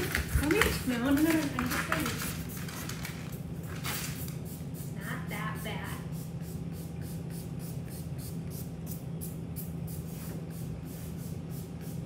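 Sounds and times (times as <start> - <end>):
steady low hum: 0.0 - 12.0
spray bottle hissing puffs: 9.6 - 12.0.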